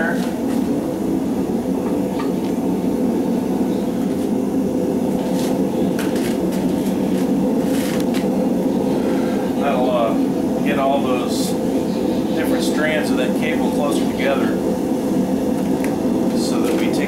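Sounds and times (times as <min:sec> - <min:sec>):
gas forge burners rushing: 0:00.0 - 0:17.0.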